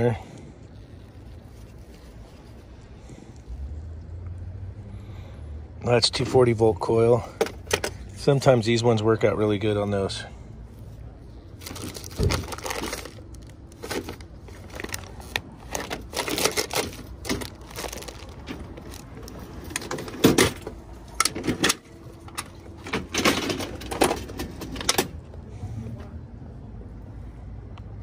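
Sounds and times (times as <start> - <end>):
parts clattering and knocking: 7.2 - 8.1, 11.6 - 25.2.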